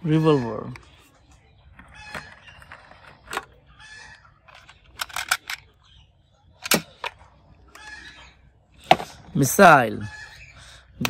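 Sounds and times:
plastic toys clicking: 1.7s - 3.6s, 4.4s - 5.7s.

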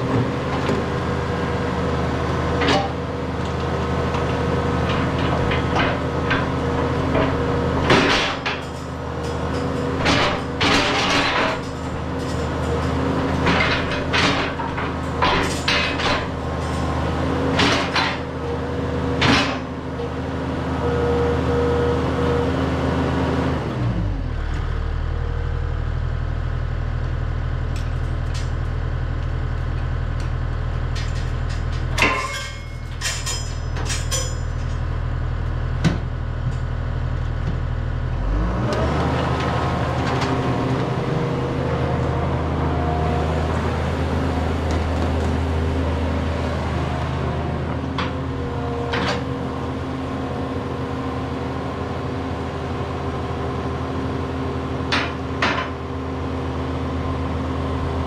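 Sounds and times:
diesel engine running: 0.0s - 58.0s
metal clanks: 30.8s - 34.9s.

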